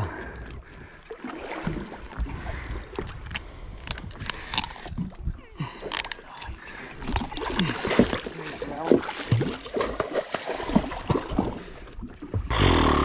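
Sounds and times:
water splashing against boat hull: 6.9 - 12.5.

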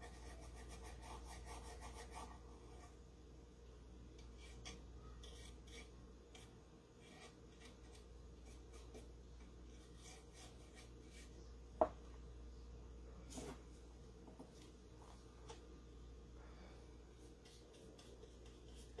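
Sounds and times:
paintbrush scratching on wood: 4.4 - 9.1, 17.4 - 19.0.

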